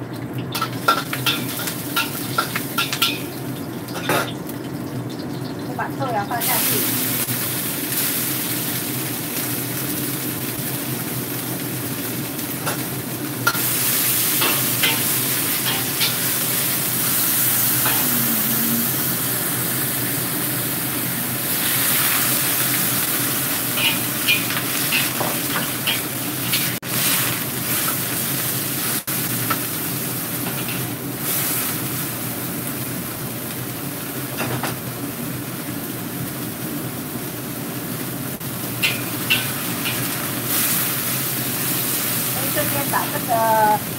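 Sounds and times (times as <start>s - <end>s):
bean sprouts sizzling in a wok: 0.6s - 4.4s, 5.6s - 43.9s
metal spatula scraping a wok: 23.8s - 27.4s.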